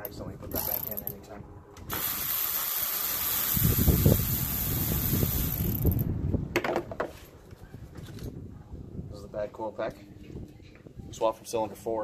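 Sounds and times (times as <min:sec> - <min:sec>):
electric ratchet spinning: 0:01.9 - 0:06.1.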